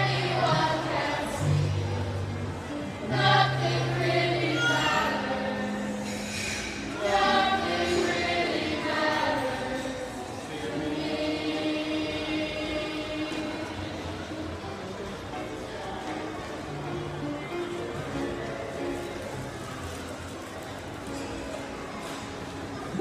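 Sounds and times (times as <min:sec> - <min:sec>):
group singing in chorus: 0:00.0 - 0:02.2, 0:03.0 - 0:14.0.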